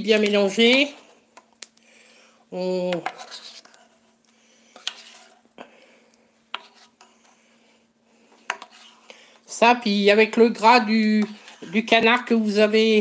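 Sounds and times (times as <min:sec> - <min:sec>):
faint rubbing: 0:03.1 - 0:04.2, 0:04.8 - 0:05.4, 0:06.5 - 0:07.3, 0:08.5 - 0:09.1.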